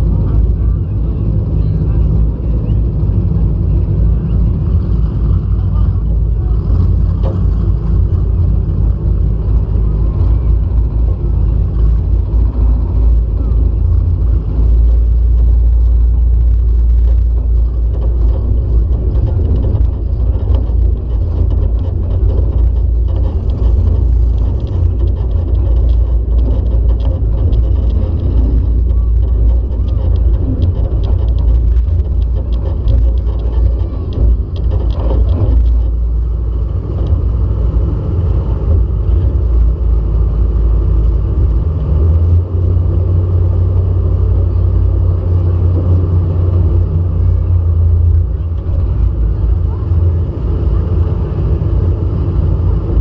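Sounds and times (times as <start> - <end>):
car engine running loud: 0.0 - 53.0.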